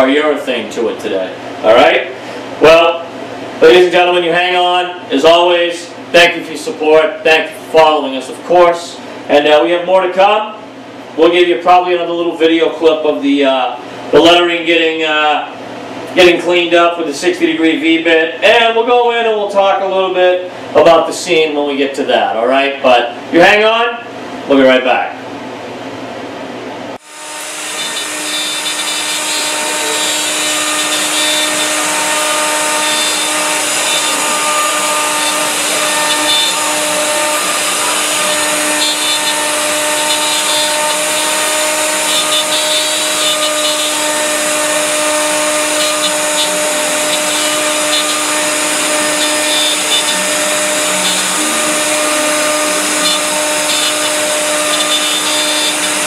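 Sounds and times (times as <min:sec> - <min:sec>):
router spindle whine: 0:27.0 - 0:56.0
bit cutting wood rasp: 0:27.2 - 0:56.0.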